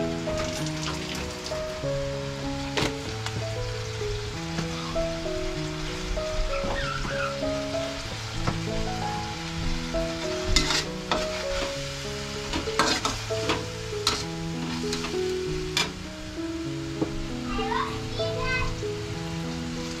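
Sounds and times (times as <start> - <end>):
food sizzling in a wok: 0.0 - 20.0
metal spatula scraping pan: 10.4 - 11.8, 12.5 - 15.2.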